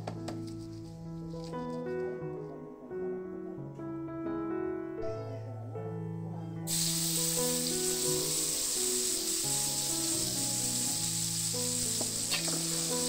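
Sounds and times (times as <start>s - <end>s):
background music: 0.0s - 13.0s
paste sizzling in hot oil: 6.7s - 13.0s.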